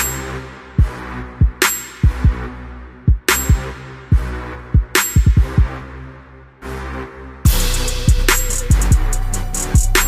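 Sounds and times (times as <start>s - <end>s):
electronic beat: 0.0s - 2.5s, 3.1s - 5.8s, 7.5s - 10.0s
deep bass kick drums: 3.1s - 5.8s, 7.5s - 10.0s.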